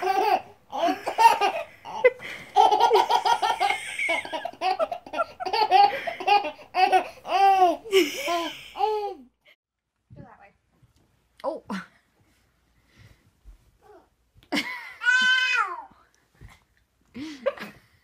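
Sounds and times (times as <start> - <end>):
baby laughing: 0.0 - 9.3.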